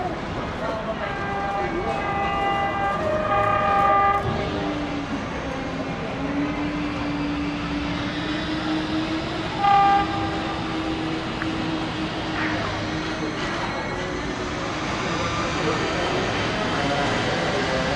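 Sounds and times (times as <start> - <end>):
train rumbling on rails: 0.0 - 17.9
train horn: 0.8 - 4.7, 9.5 - 11.0
rising whine: 1.9 - 15.8.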